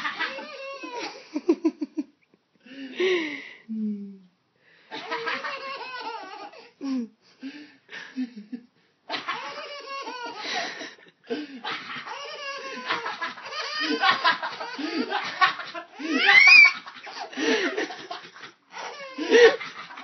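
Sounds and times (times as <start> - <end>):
baby laughing: 0.0 - 1.5, 4.9 - 6.6, 9.1 - 20.0
baby squealing: 0.1 - 1.1, 9.1 - 10.4, 11.7 - 15.0, 16.0 - 17.2, 18.7 - 19.6.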